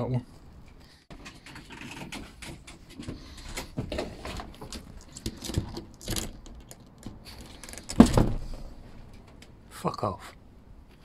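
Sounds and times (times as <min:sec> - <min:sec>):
claws pattering on plastic roof: 0:01.1 - 0:09.6.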